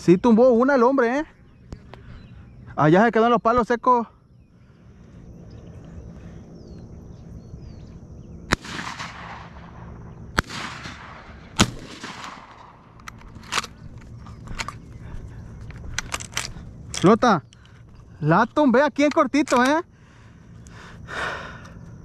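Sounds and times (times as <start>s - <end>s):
shotgun shots: 8.5s - 13.6s
small clicks: 12.9s - 14.8s.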